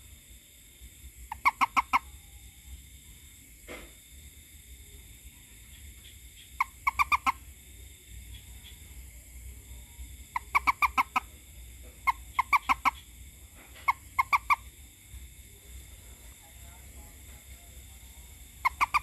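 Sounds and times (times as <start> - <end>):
frog croaking: 1.2 - 2.4, 5.6 - 15.2, 16.4 - 19.0.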